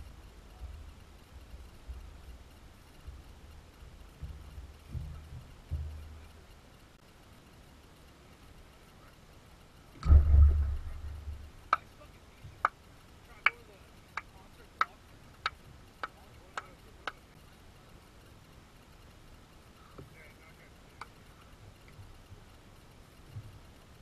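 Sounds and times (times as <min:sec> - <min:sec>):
ball thumping plastic target: 0:10.0 - 0:11.8
ball bouncing clicks: 0:12.5 - 0:17.3.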